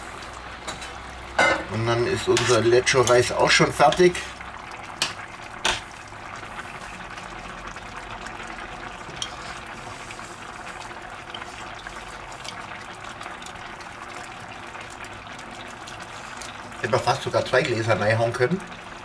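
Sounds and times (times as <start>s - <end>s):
sauce bubbling in a pan: 0.0s - 19.0s.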